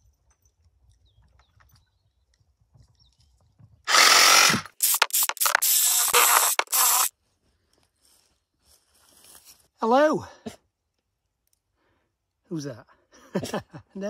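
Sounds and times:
reciprocating saw cutting branch: 0:03.9 - 0:07.1.

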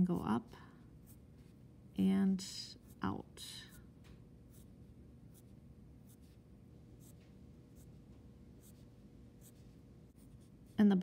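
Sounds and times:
pencil scratching on paper: 0:05.3 - 0:06.4, 0:08.6 - 0:10.8.

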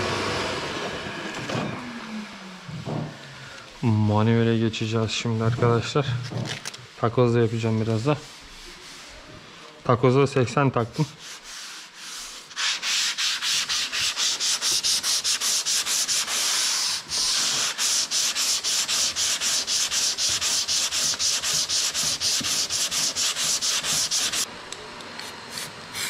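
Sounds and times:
sandpaper rubbing on filler: 0:07.4 - 0:09.4, 0:10.7 - 0:24.5.

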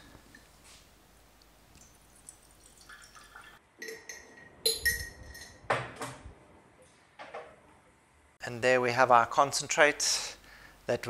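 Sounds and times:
water trickling through strainer: 0:01.8 - 0:03.6
metal and glass clinking: 0:02.5 - 0:05.6.

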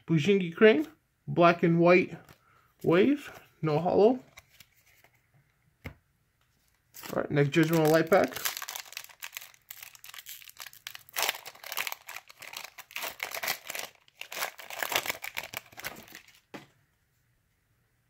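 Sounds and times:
foil wrapper crinkling and tearing: 0:06.9 - 0:16.5.

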